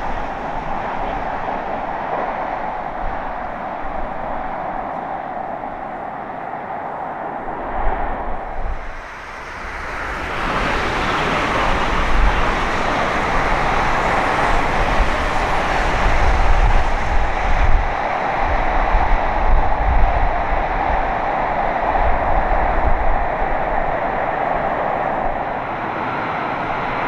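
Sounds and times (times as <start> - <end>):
train passing: 0.0 - 27.0
wheel-on-rail rumble: 0.0 - 27.0.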